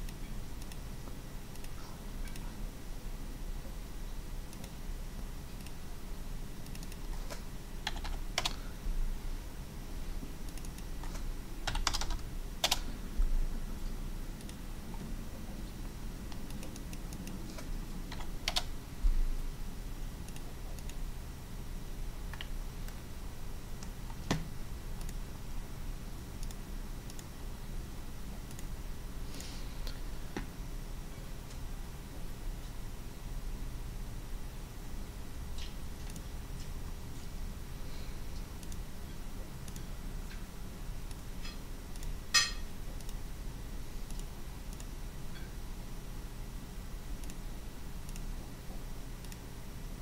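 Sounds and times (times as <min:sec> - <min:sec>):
computer mouse clicks: 0:00.0 - 0:00.8, 0:01.5 - 0:02.5, 0:04.5 - 0:04.8, 0:05.6 - 0:05.8, 0:06.6 - 0:08.6, 0:10.5 - 0:12.9, 0:14.4 - 0:15.1, 0:16.3 - 0:18.7, 0:20.2 - 0:21.0, 0:25.0 - 0:25.2, 0:26.4 - 0:27.3, 0:28.4 - 0:28.7, 0:35.5 - 0:36.3, 0:38.3 - 0:38.9, 0:39.6 - 0:43.2, 0:44.0 - 0:45.5, 0:47.2 - 0:47.4, 0:48.0 - 0:48.3, 0:49.2 - 0:49.4
steady low hum: 0:00.0 - 0:50.0.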